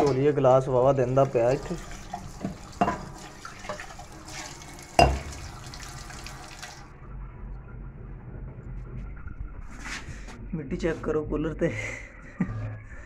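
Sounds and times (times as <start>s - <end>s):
steel glass rinsed under water: 0.0s - 6.8s
tap water splashing into sink: 1.2s - 6.8s.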